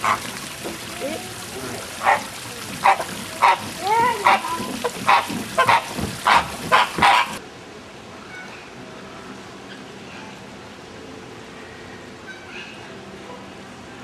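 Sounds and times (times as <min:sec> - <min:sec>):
macaws squawking: 0:01.7 - 0:07.4.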